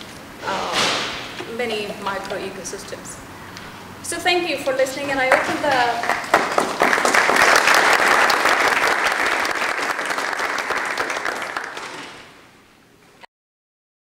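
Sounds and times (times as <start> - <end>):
audience applauding: 5.3 - 12.4.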